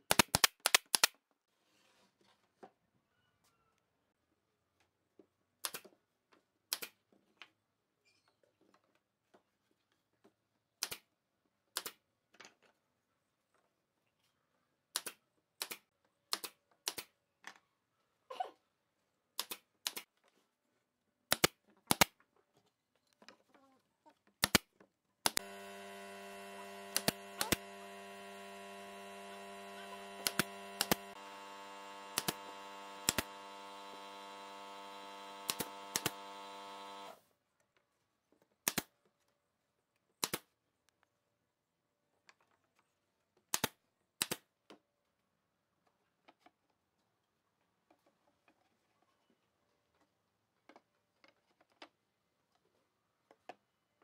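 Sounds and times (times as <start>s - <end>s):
steady machine hum: 25.4s - 37.2s
nail gun firing nails into wood: 26.8s - 27.8s, 30.1s - 31.2s, 32.0s - 37.1s, 38.6s - 38.9s.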